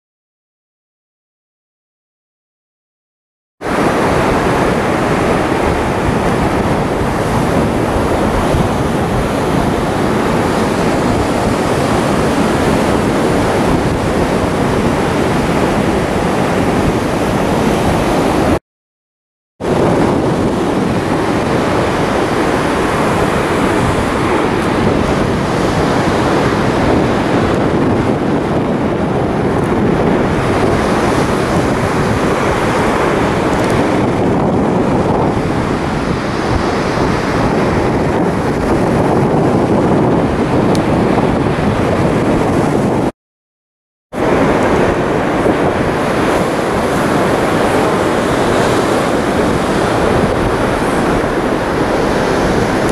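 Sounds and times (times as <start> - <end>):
surf on shore: 3.6 - 18.6, 19.6 - 43.1, 44.1 - 52.9
wind buffeting microphone: 3.6 - 18.6, 19.6 - 43.1, 44.1 - 52.9.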